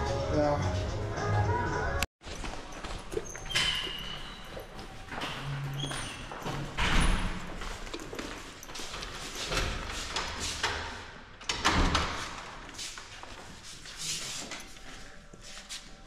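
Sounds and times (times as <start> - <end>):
footsteps: 2.2 - 10.7
wooden door opening: 5.1 - 12.7.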